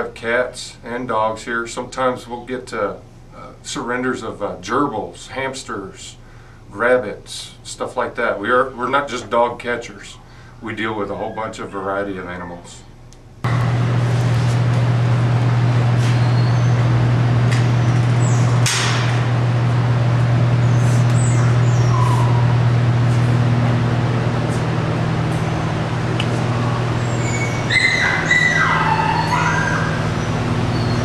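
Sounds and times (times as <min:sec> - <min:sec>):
dogs yelping: 0:12.3 - 0:12.8, 0:20.5 - 0:22.9, 0:26.4 - 0:31.0
loud steady low hum: 0:13.4 - 0:31.0.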